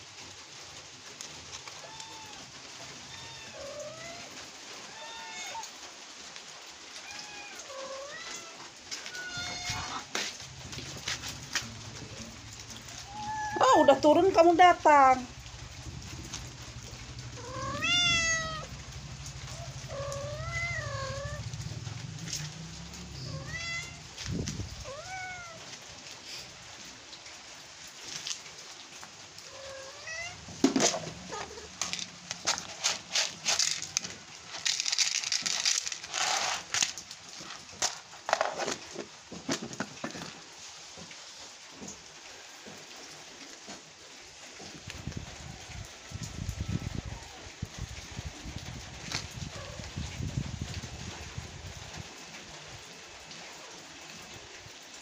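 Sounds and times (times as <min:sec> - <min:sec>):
kitten meowing: 0:07.0 - 0:10.1, 0:13.0 - 0:14.0, 0:17.3 - 0:18.7, 0:19.5 - 0:21.5, 0:23.2 - 0:24.1, 0:24.8 - 0:25.6
cats crunching dry kibble: 0:07.0 - 0:13.6, 0:29.7 - 0:40.5
kibble rattling in plastic bowls: 0:30.5 - 0:40.5.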